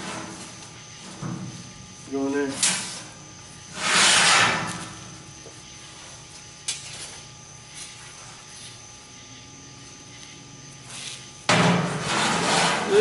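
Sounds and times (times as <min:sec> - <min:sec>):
low machinery hum: 0:00.0 - 0:13.0.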